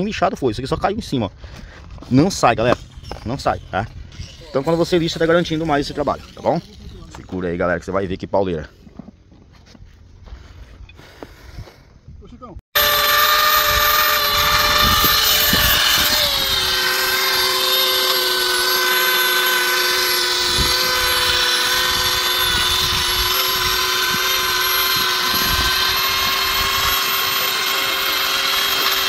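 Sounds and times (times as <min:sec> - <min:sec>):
plastic welder motor whine: 0:12.8 - 0:29.0.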